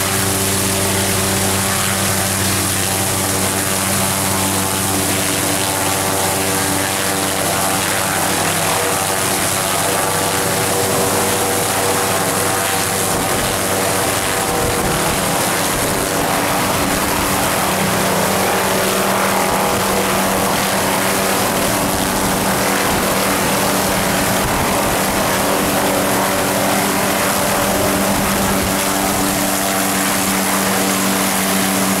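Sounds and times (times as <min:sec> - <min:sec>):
helicopter turbine and rotor running: 0:00.0 - 0:32.0.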